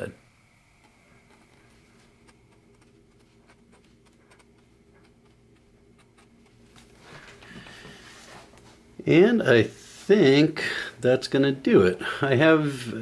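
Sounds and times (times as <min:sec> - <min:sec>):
low steady hum: 0:00.0 - 0:13.0
pen nib scratching paper: 0:01.2 - 0:06.7.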